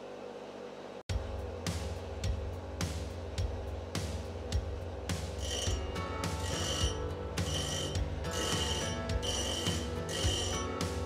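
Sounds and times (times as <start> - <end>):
background music with beat: 1.1 - 11.0
bench grinder hum: 5.3 - 11.0
high-pitched grinding of drill bit: 5.4 - 5.8, 6.4 - 10.8.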